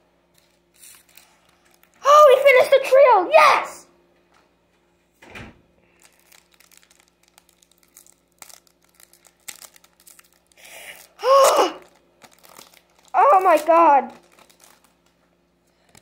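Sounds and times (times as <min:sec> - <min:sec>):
foil wrapper crinkling: 0:00.4 - 0:02.0, 0:05.8 - 0:16.0.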